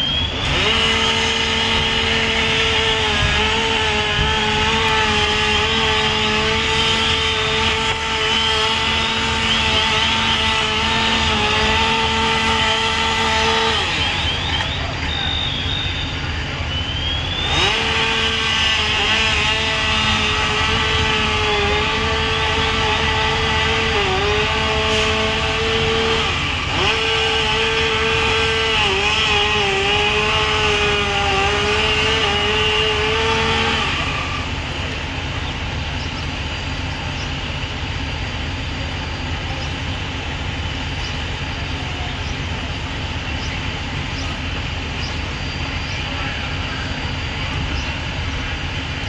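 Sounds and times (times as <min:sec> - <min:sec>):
engine droning with high whine: 0:00.0 - 0:49.0
low steady engine rumble: 0:00.0 - 0:49.0.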